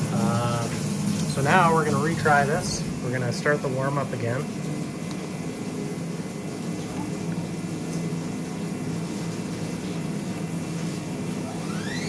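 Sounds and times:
spindle whine rising in pitch: 0.0 - 8.0, 10.8 - 12.0
milling machine humming: 0.0 - 12.0.

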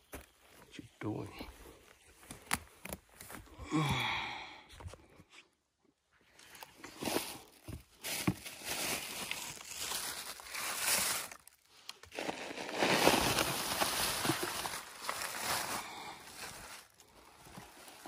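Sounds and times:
dry crunching rustle: 6.9 - 18.0.

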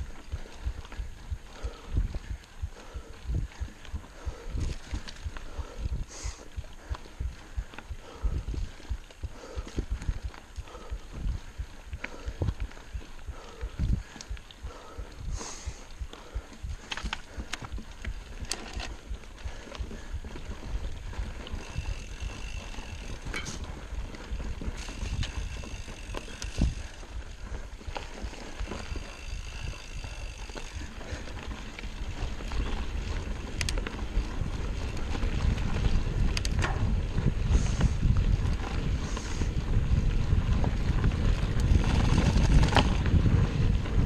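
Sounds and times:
tyres rolling on dirt: 0.0 - 44.0
wind buffeting: 0.0 - 44.0
bike knocks and rattles: 21.2 - 23.8, 32.2 - 38.6, 40.3 - 43.8.

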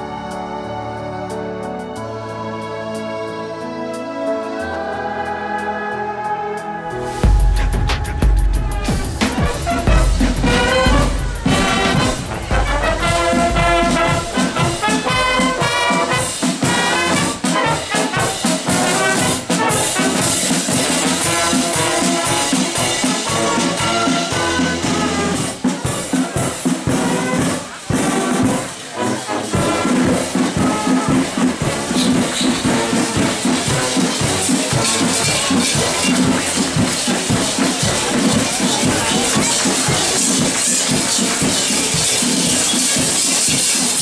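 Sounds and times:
marching brass band playing: 6.9 - 44.0.

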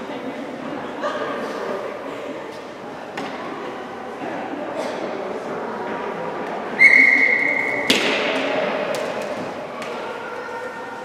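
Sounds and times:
faint chatter: 0.0 - 11.0
referee's whistle: 6.8 - 8.0
sharp crack ringing in arena: 7.6 - 9.3.

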